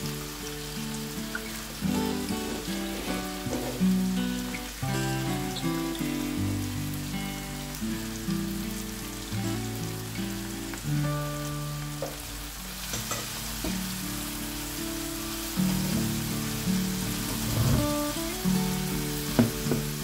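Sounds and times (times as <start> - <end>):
soft background music: 0.0 - 20.0
vegetables sizzling in oil: 0.0 - 20.0
spatula scraping pan: 17.2 - 18.0.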